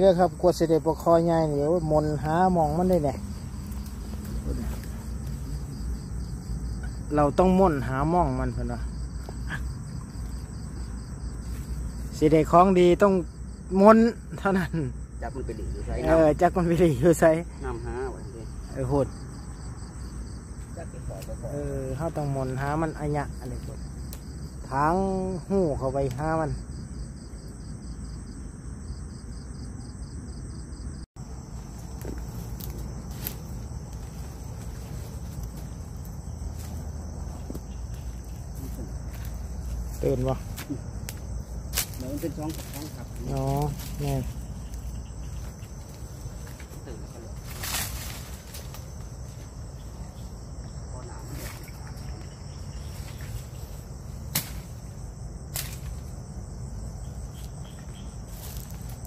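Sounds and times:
night insects chirping: 0.0s - 59.0s
dry brush snapping underfoot: 2.2s - 6.1s, 23.4s - 24.4s, 31.6s - 49.7s, 52.9s - 54.9s, 55.5s - 56.3s, 57.3s - 59.0s
sharp snaps: 54.3s - 54.7s.

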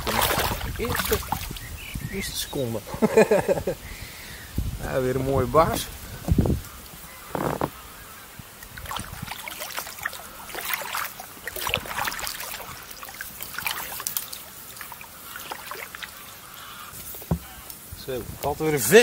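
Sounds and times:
water dripping off paddle: 0.0s - 1.8s, 6.0s - 18.5s
kayak paddle splashing: 0.0s - 2.0s, 6.0s - 17.9s.

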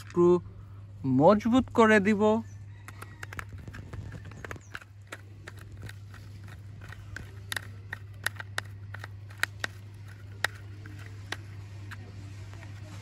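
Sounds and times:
steady low hum: 0.0s - 13.0s
screwdriver clicking on screw: 3.0s - 12.0s.

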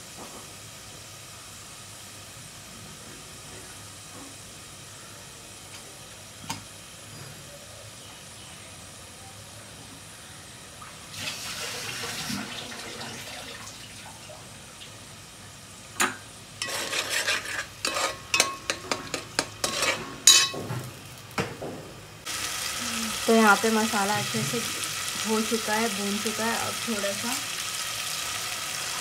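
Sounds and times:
paste sizzling in hot oil: 11.0s - 21.4s, 22.2s - 29.0s
spoon scraping and clinking pot: 16.6s - 20.6s.

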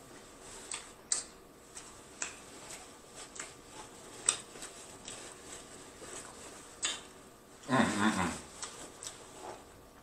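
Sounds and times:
chewing crunchy food: 0.6s - 7.2s, 8.5s - 9.6s
wet mouth clicks: 0.7s - 1.4s, 6.8s - 7.1s
paper napkin rustling: 1.6s - 9.9s.

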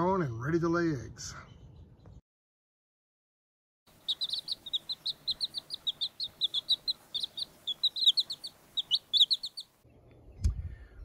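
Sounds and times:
baby chicks peeping: 3.9s - 9.8s.

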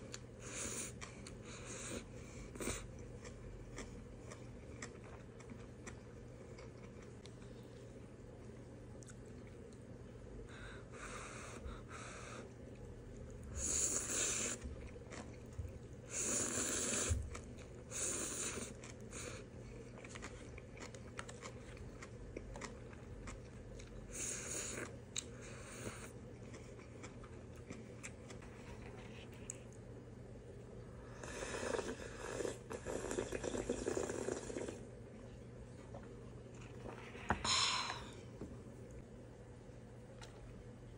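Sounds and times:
quiet chewing: 0.0s - 30.0s, 40.1s - 40.7s
loud noodle slurping: 16.1s - 17.2s, 31.3s - 34.8s.

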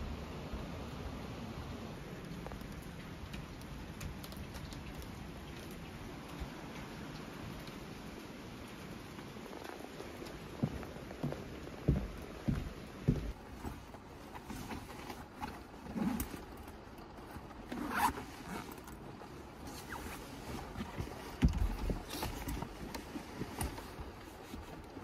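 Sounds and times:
clothing rustling: 9.4s - 25.0s
zipper being drawn: 17.7s - 19.0s.

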